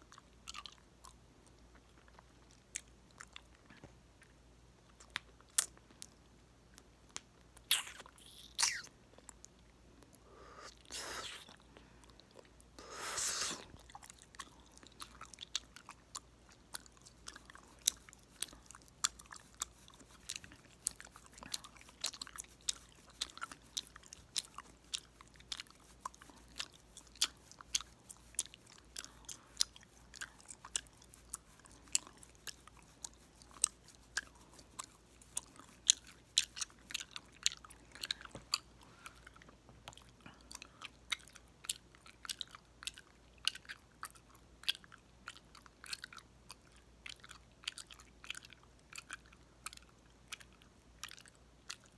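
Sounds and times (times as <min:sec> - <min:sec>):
gum chewing and popping: 0:00.0 - 0:51.9
short hiss: 0:12.9 - 0:13.7.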